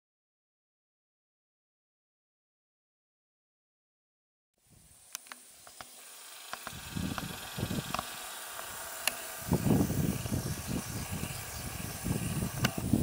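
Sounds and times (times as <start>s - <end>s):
steady high hiss: 4.6s - 13.0s.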